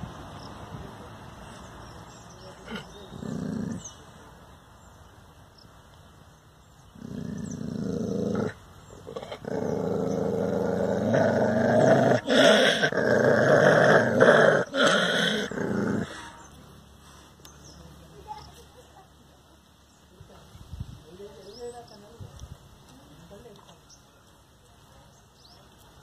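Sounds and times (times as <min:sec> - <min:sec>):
dog growling: 0:02.5 - 0:04.0, 0:06.9 - 0:16.4.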